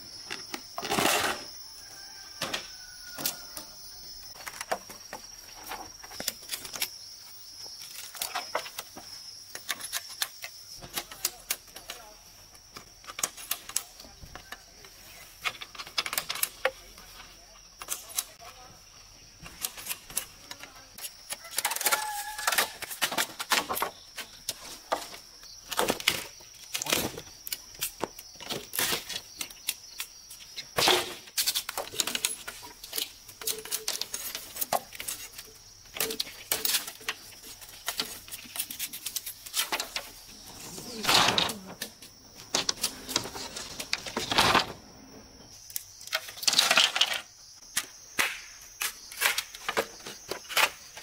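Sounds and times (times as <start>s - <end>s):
machete chopping bamboo: 47.7s - 49.7s.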